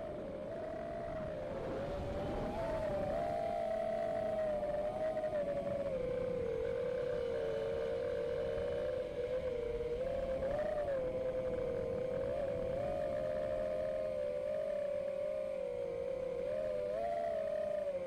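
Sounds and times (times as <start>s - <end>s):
quadcopter motors whining: 0.0s - 18.0s.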